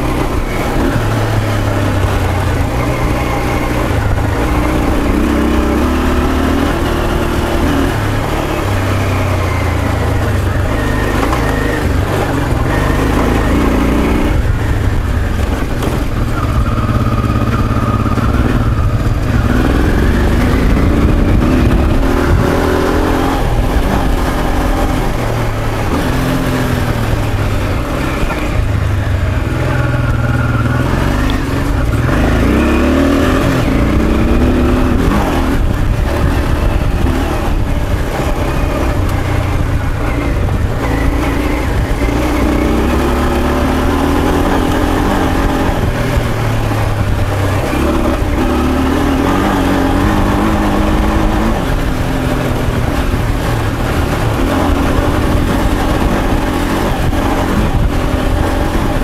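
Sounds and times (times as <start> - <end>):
motorcycle engine revving under load: 0.0 - 59.0.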